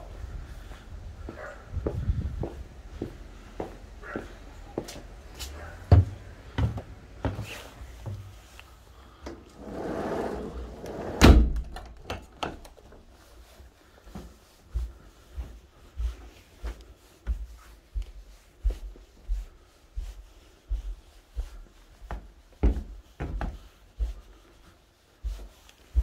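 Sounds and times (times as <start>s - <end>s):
footsteps on hard floor: 1.3s - 8.4s, 12.9s - 26.0s
sliding glass door rumbling: 9.5s - 11.9s
door shutting with thud: 10.9s - 12.6s.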